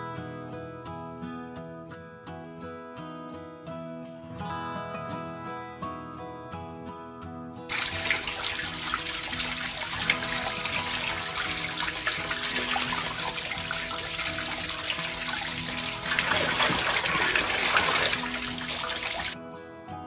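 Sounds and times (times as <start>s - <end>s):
tap water splashing over hands: 7.7s - 19.4s.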